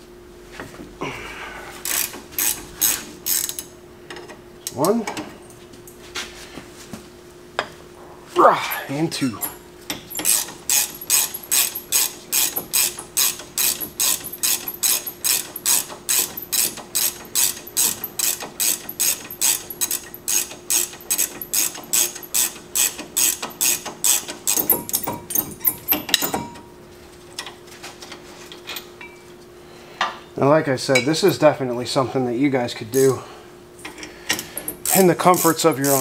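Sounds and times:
ratchet wrench clicking: 0:01.8 - 0:03.7, 0:09.4 - 0:26.4, 0:34.0 - 0:36.0.

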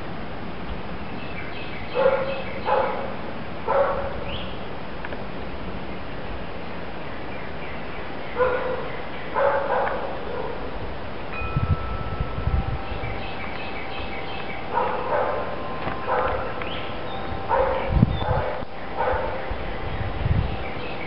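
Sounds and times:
dog barking: 0:02.0 - 0:03.1, 0:03.7 - 0:04.2, 0:08.4 - 0:10.6, 0:14.7 - 0:16.5, 0:17.5 - 0:19.4
wind chimes ringing: 0:11.3 - 0:18.7.

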